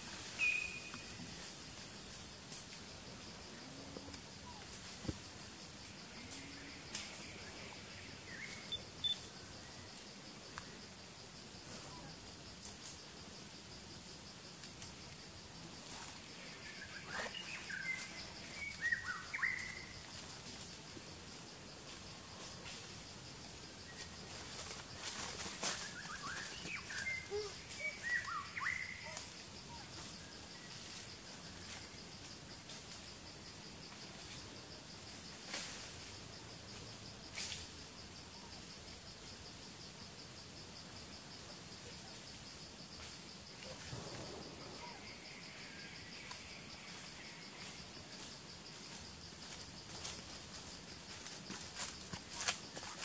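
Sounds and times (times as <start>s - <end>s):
short chirping calls: 0.4s - 1.0s, 8.4s - 9.3s.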